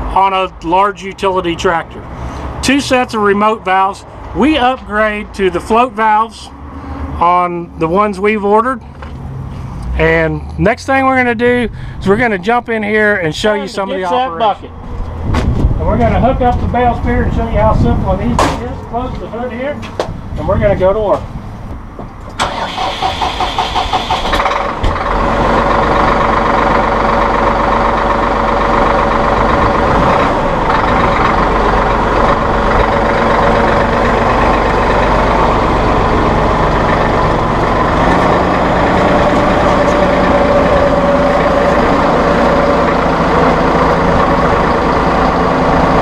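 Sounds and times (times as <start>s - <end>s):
tractor diesel engine starting: 22.3s - 46.0s.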